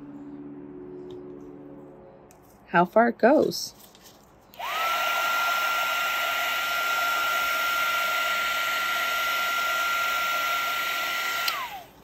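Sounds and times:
heat gun fan whine: 4.5s - 12.0s.

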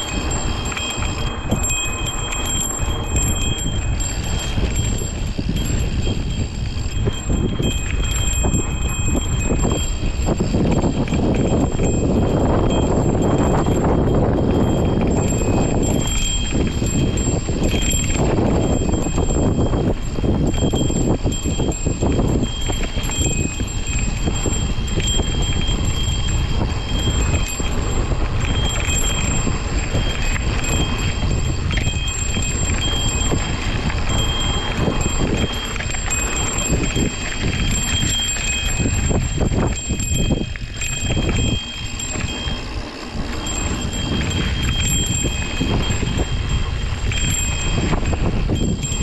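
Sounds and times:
bike tyres on dirt trail: 0.0s - 49.0s
thin high ringing tone: 0.0s - 49.0s
wind rumble on microphone: 0.0s - 49.0s.

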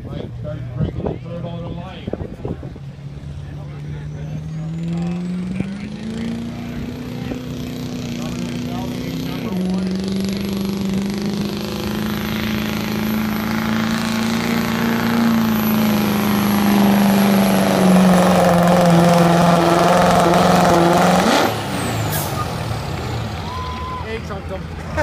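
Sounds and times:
truck engine at high revs: 0.0s - 25.0s.

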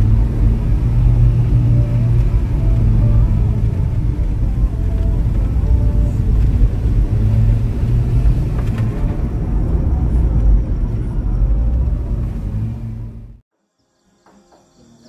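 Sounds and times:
vehicle engine and tyre rumble: 0.0s - 13.4s.

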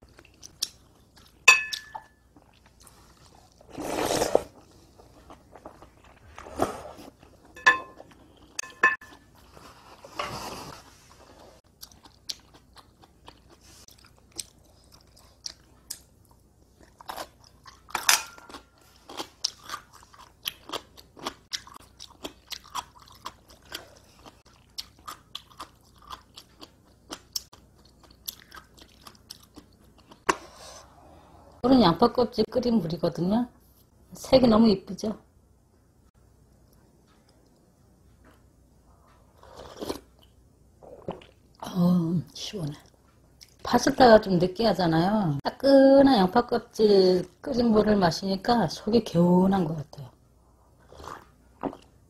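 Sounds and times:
metal fork clinking on dishes: 1.5s - 2.1s, 7.6s - 8.0s, 8.6s - 9.1s
noodles slurped: 3.5s - 4.6s
crunchy chewing: 11.7s - 30.4s.

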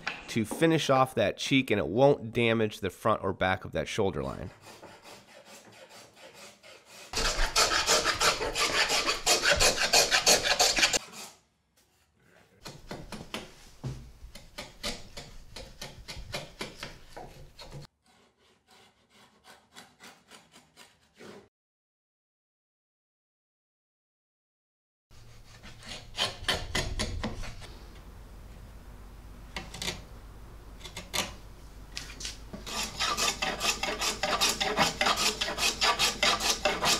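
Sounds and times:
router plane scraping wood: 4.4s - 11.4s, 14.8s - 21.5s, 25.2s - 27.8s, 32.2s - 36.9s.

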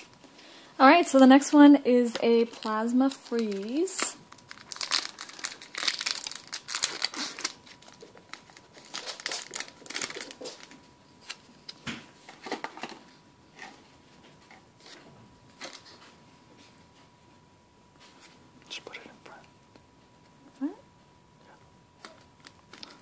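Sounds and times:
foil wrapper crinkling: 2.2s - 11.5s, 22.0s - 23.0s.

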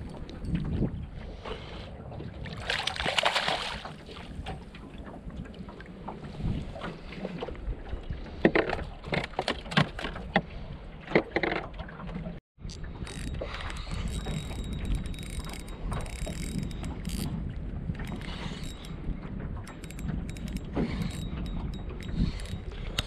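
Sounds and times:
wind and water rushing: 0.0s - 9.0s.

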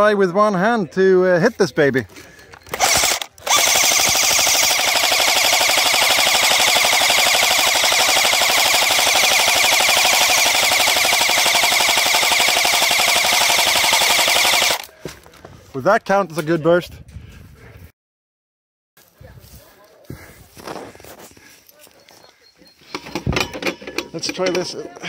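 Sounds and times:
airsoft machine gun firing: 2.7s - 14.9s.

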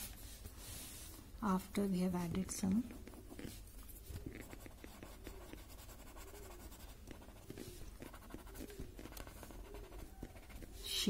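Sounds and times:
blending stump rubbing on paper: 2.9s - 11.0s.

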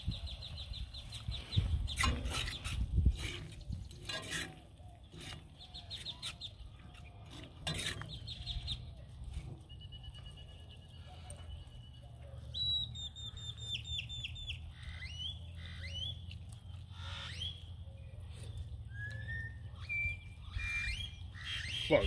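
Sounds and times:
birds chirping: 0.0s - 22.0s
utensil scraping and knocking pan: 2.0s - 6.4s, 7.3s - 8.3s.

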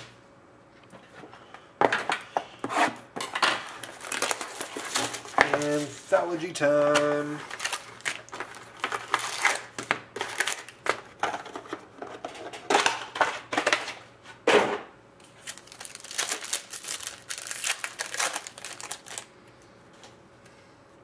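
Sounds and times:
foil wrappers crinkling and tearing: 3.6s - 11.6s, 15.3s - 19.3s.

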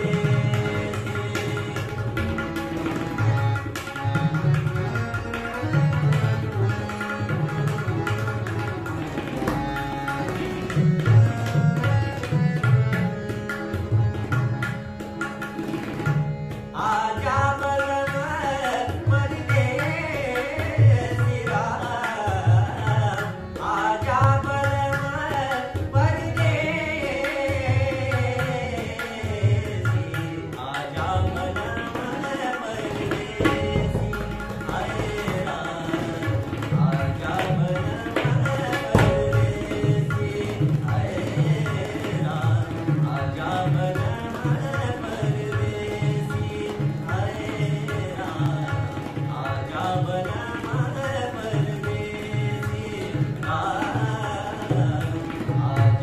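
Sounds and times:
man singing: 0.0s - 4.8s, 16.6s - 56.0s
harmonium: 0.0s - 56.0s
tabla: 0.0s - 56.0s.

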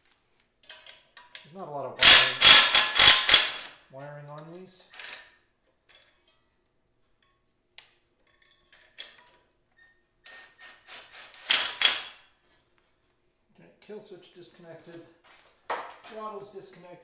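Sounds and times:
wrench clicks and taps: 0.6s - 3.7s
metal scraping rattle: 2.0s - 3.7s, 11.2s - 12.2s.

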